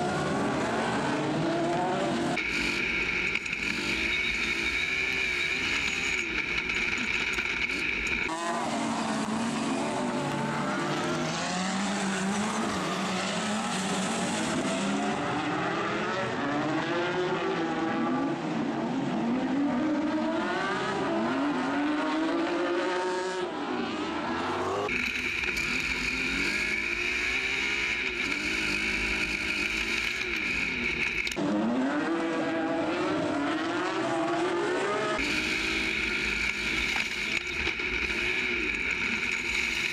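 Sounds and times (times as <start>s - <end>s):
high whine inside buggy: 0.0s - 16.2s, 24.6s - 32.2s, 33.0s - 39.9s
racing buggy engines: 0.0s - 39.9s.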